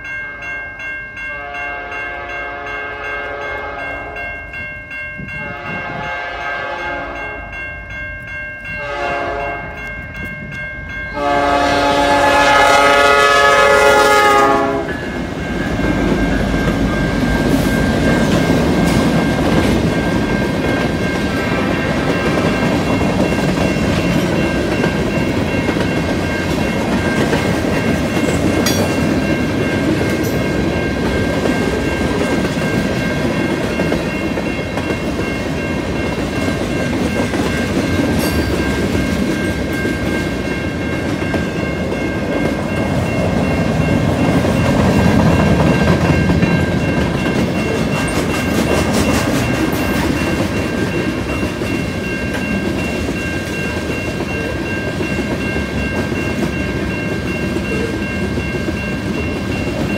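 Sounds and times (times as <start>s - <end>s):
crossing bell ringing: 0.0s - 59.9s
locomotive air horn blasts: 5.4s - 7.3s, 8.8s - 9.6s, 11.2s - 15.0s.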